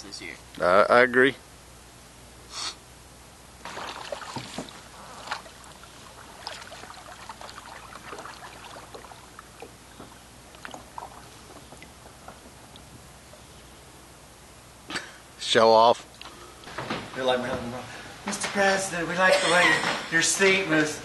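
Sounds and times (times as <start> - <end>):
water dripping and trickling: 3.6 - 9.8, 10.4 - 12.8
kayak paddle splashing: 3.6 - 12.6.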